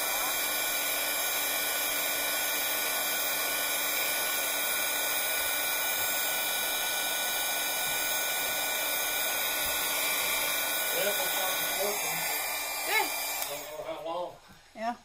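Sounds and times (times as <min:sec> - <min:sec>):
heat tool blowing hot air: 0:00.0 - 0:14.0.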